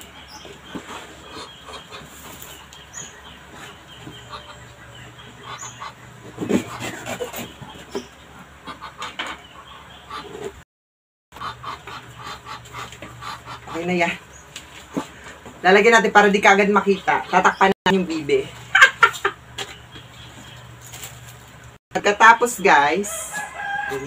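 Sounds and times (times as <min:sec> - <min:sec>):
duck calling: 0:04.0 - 0:08.0, 0:11.4 - 0:14.2.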